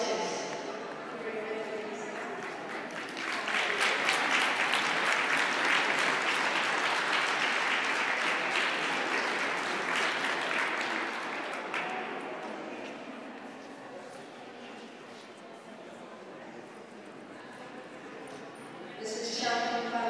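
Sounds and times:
audience applauding: 0:02.0 - 0:12.7.

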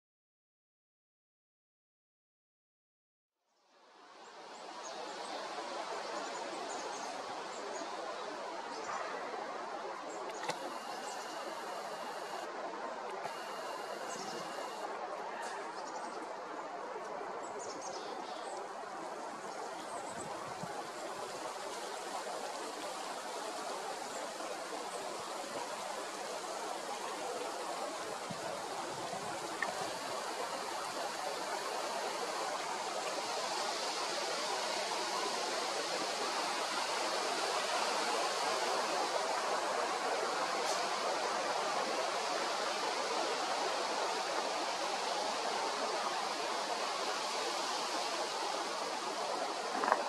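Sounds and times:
rushing outdoor noise: 0:03.8 - 0:50.0
faint high chirps: 0:10.4 - 0:12.5, 0:13.2 - 0:14.9.

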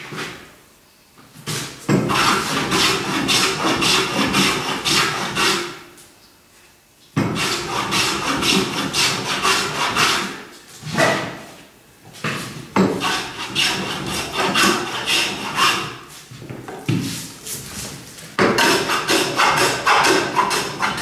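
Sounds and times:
bench plane shaving wood: 0:02.1 - 0:05.8, 0:07.2 - 0:10.4, 0:12.9 - 0:16.1, 0:18.4 - 0:21.0.

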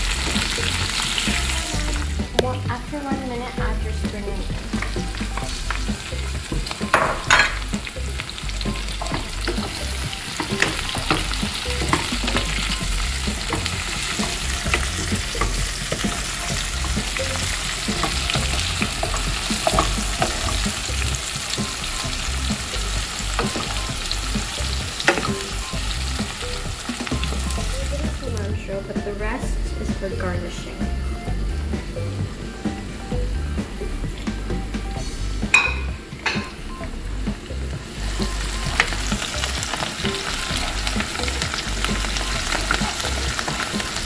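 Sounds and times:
vegetables sizzling in oil: 0:00.0 - 0:44.0
wooden spoon scraping a pan: 0:08.8 - 0:25.4.

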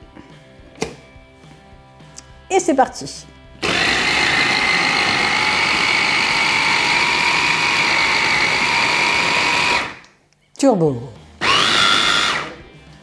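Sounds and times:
electric chopper motor whine: 0:03.6 - 0:10.0, 0:11.4 - 0:12.6.

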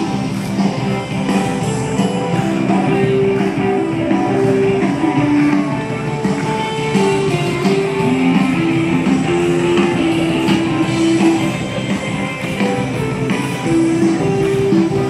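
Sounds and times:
guitar-led rock music: 0:00.0 - 0:15.0.

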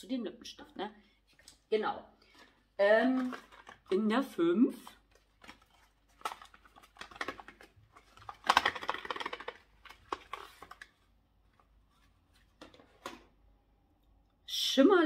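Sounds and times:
cardboard rustling: 0:05.1 - 0:13.3
cardboard packaging clicks and taps: 0:05.4 - 0:10.9.

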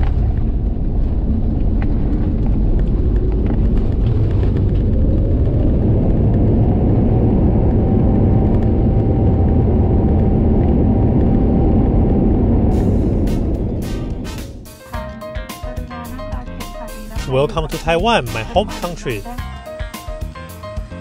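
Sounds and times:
jet engine whine: 0:00.0 - 0:15.0
aircraft rumbling along runway: 0:00.0 - 0:21.0.

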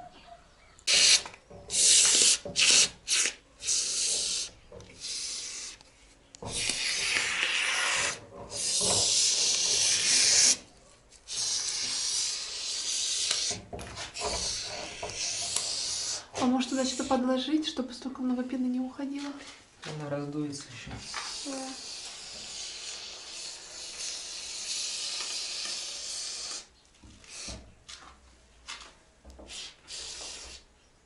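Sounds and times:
foam gun hissing: 0:00.9 - 0:05.8, 0:06.5 - 0:10.6, 0:11.3 - 0:17.1, 0:21.0 - 0:26.7, 0:27.3 - 0:27.6, 0:29.5 - 0:30.7.

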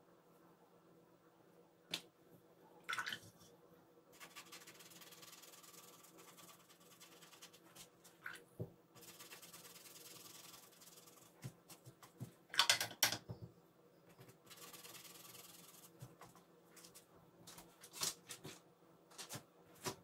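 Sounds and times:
paintbrush dabbing on palette: 0:04.2 - 0:08.2, 0:09.0 - 0:11.8, 0:14.4 - 0:16.2
brush rinsed in water pot: 0:04.2 - 0:08.4, 0:09.0 - 0:11.4.

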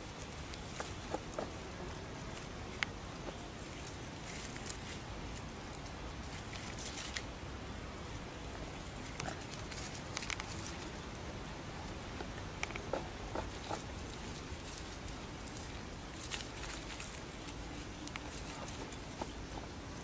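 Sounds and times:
steady background hiss: 0:00.0 - 0:20.0
small clicks and rustles: 0:02.2 - 0:07.3, 0:08.8 - 0:19.7.

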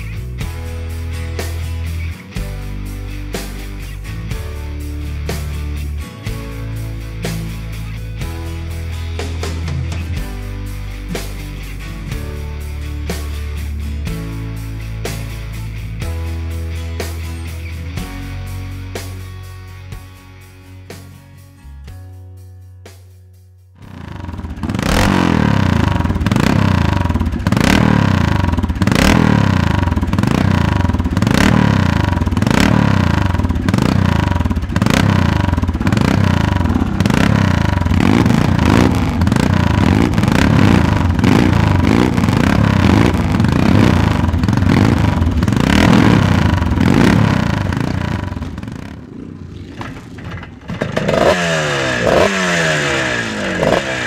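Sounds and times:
scrambler kick-started and revving: 0:00.0 - 0:17.7, 0:23.8 - 0:54.0
motocross bike engine revving: 0:23.8 - 0:54.0.

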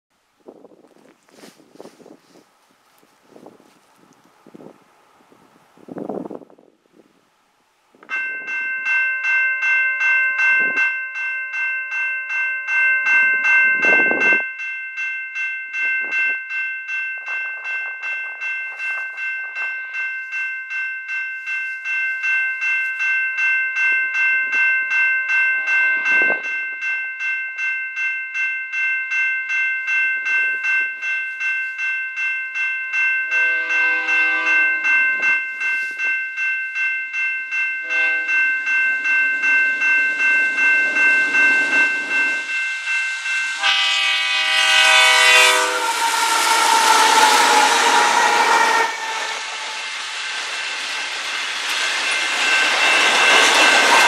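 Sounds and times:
crossing bell ringing: 0:08.0 - 0:54.0
train horn blasts: 0:33.3 - 0:35.3, 0:37.8 - 0:38.5, 0:43.6 - 0:49.8
diesel train rumble: 0:37.5 - 0:54.0.

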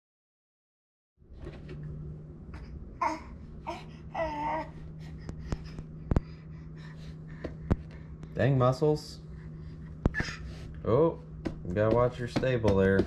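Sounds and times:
steady low hum: 0:01.2 - 0:13.0
infant babbling: 0:03.0 - 0:04.8, 0:10.1 - 0:10.6
sharp knocks: 0:11.4 - 0:13.0.

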